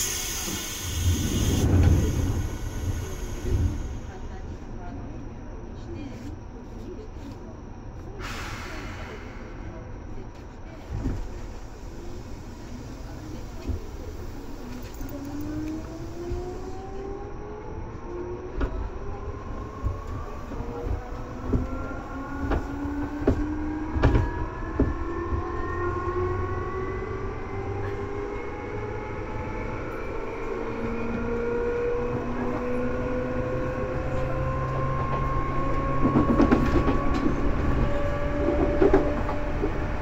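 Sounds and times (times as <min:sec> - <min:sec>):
electric train motor whine: 0:11.6 - 0:40.0.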